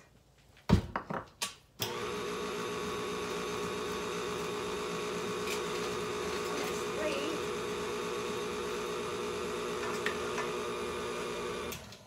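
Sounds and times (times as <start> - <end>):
stand mixer motor humming: 1.8 - 11.9.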